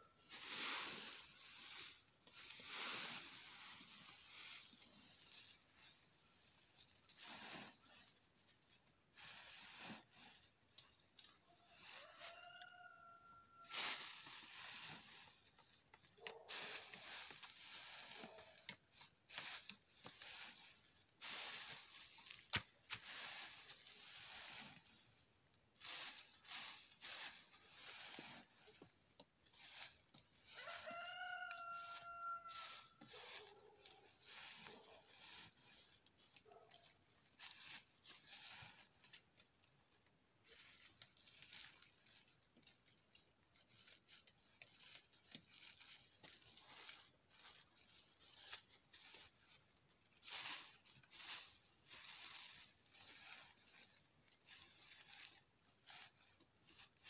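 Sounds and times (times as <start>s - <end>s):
rake scraping through dry leaves: 0.0s - 57.0s.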